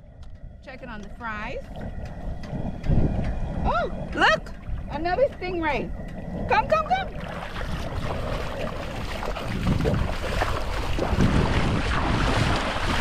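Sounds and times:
wind buffeting microphone: 0:00.0 - 0:13.0
shallow sea water splashing: 0:00.2 - 0:13.0.

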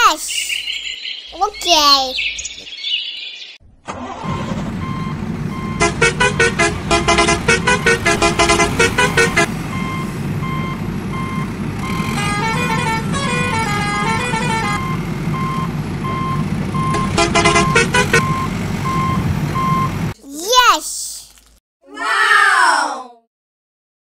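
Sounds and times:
truck engine rumble: 0:03.6 - 0:20.2
reversing beeper: 0:04.0 - 0:12.6, 0:13.7 - 0:20.1.

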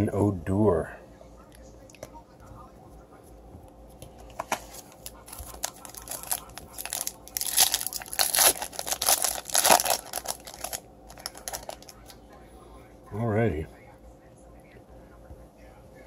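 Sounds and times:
foil wrapper tearing and crinkling: 0:04.7 - 0:12.1.

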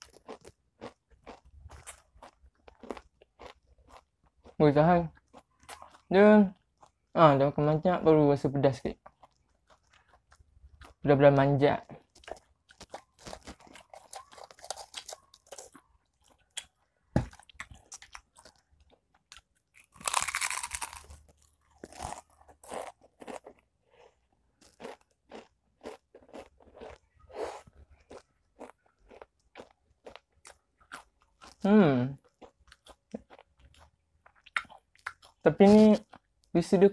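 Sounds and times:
crisps crunching: 0:00.0 - 0:04.0, 0:12.0 - 0:27.0.

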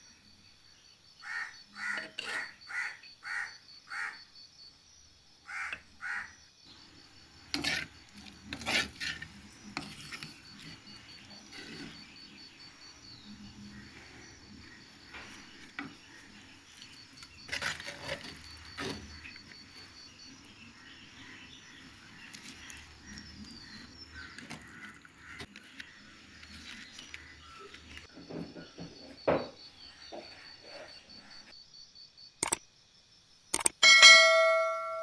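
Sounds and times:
wooden spoon knocking clay pots: 0:22.4 - 0:30.4.

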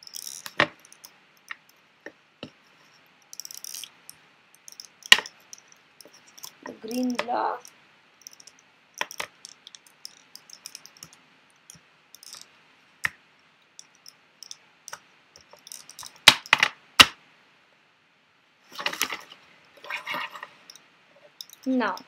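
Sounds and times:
plastic puzzle pieces clicking: 0:00.0 - 0:01.6, 0:03.4 - 0:03.9, 0:04.6 - 0:11.2, 0:12.2 - 0:13.2, 0:13.8 - 0:17.1.

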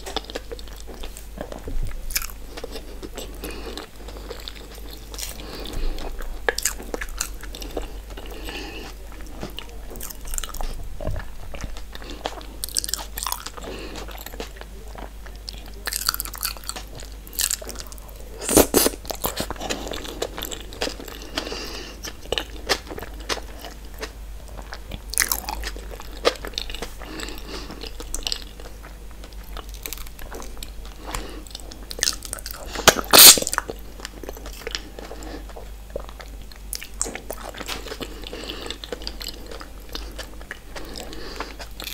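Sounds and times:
close-miked chewing and crunching: 0:00.0 - 0:41.9.

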